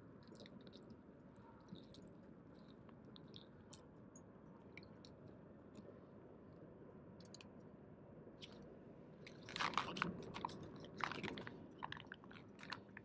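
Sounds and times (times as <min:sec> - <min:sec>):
food pouch crinkling: 0:09.4 - 0:13.0.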